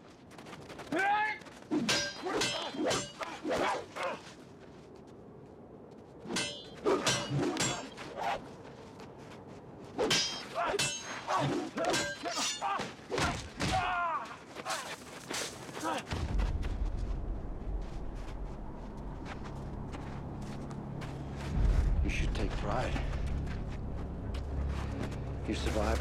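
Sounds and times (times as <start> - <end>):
steel blades clashing: 1.8 - 3.4, 6.3 - 8.0, 10.0 - 12.8.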